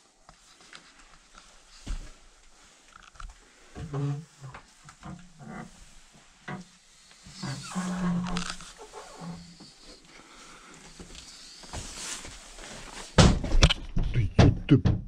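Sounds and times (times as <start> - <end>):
wooden door creaking: 7.3 - 9.8
loud knocks and bumps: 13.2 - 15.0.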